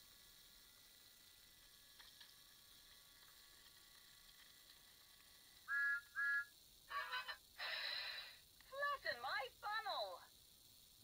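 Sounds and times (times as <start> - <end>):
toy train electronic whistle toots: 5.7 - 6.6.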